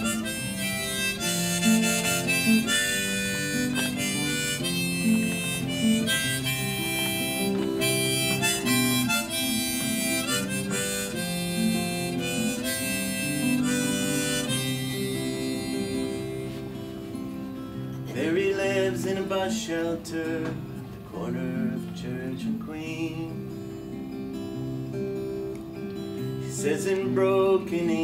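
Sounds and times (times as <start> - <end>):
harmonica melody: 0.0 - 19.0
strummed acoustic guitar: 0.0 - 28.0.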